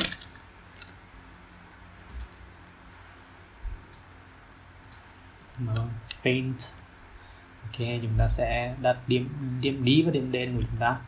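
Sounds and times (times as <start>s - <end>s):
faint steady hum: 0.0s - 11.0s
computer mouse clicks: 2.1s - 2.4s, 3.8s - 4.1s, 4.8s - 5.1s.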